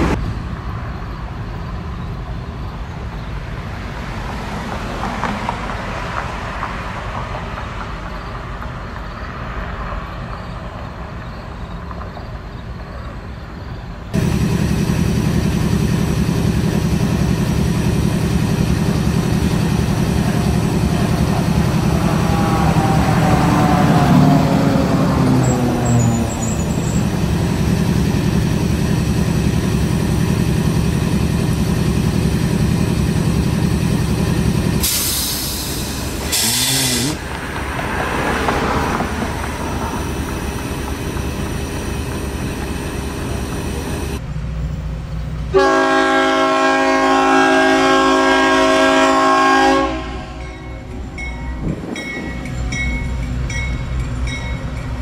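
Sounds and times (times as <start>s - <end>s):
diesel locomotive idling: 14.1s - 55.0s
locomotive horn blast: 17.2s - 27.9s, 34.3s - 37.3s, 45.5s - 50.6s
hissing air bursts: 34.7s - 37.4s.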